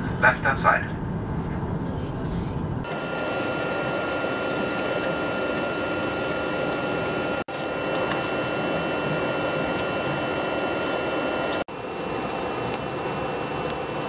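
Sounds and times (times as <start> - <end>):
train carriage rumble: 0.0 - 7.3
high whine: 0.0 - 14.0.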